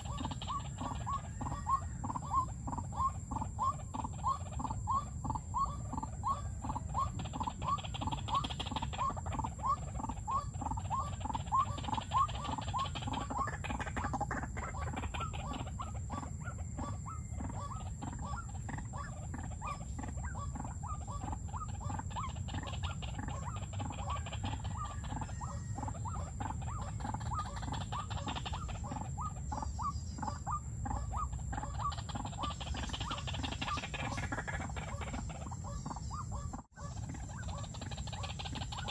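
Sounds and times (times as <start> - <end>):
waterhen calling: 0.0 - 38.9.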